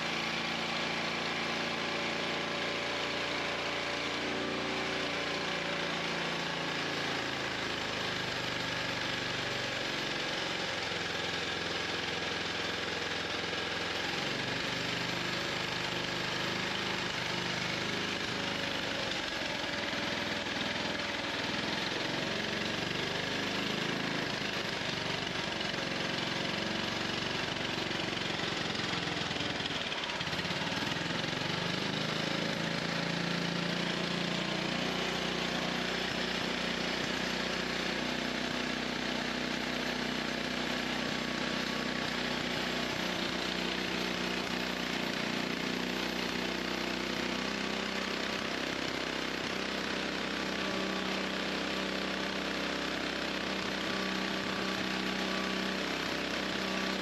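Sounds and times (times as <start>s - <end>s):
petrol engine running unevenly: 0.0s - 57.0s.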